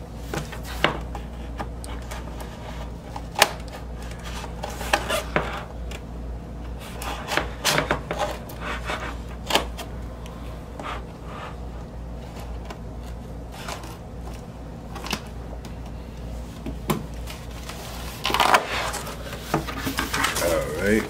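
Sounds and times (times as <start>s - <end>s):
cardboard box scraping on desk: 17.6s - 21.0s.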